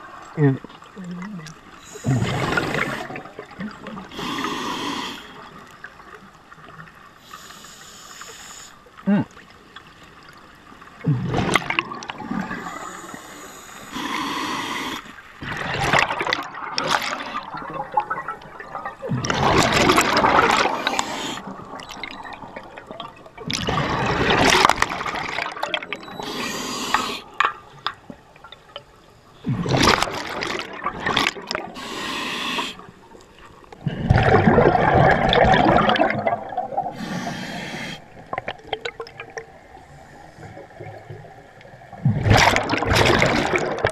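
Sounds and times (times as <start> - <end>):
regulator breathing hiss: 4.1 - 5.4, 7.2 - 8.8, 12.6 - 15.1, 20.9 - 21.4, 26.2 - 27.3, 31.8 - 32.9, 37.0 - 38.2
exhaust bubbles underwater: 15.4 - 26.2, 33.8 - 37.1.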